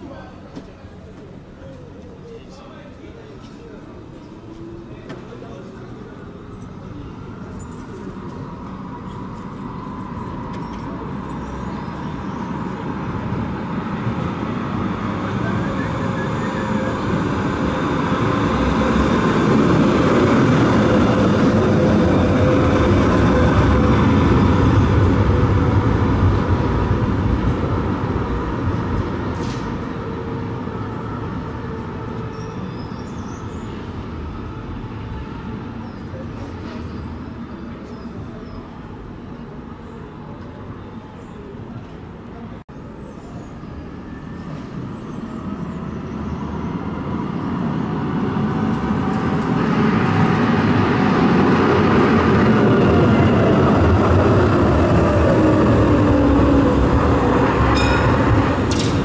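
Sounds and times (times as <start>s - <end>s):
tram wheels rumbling on rail: 0.0s - 59.0s
tram motor whine: 3.7s - 42.4s, 43.1s - 59.0s.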